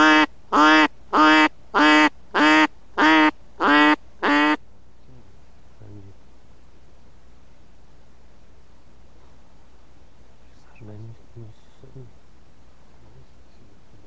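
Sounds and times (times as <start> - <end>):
duck quacking: 0.0 - 4.6.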